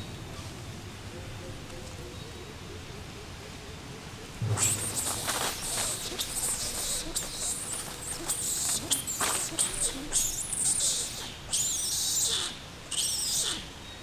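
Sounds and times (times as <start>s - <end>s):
outdoor background noise: 0.0s - 14.0s
high-pitched animal squeaks: 4.5s - 13.7s.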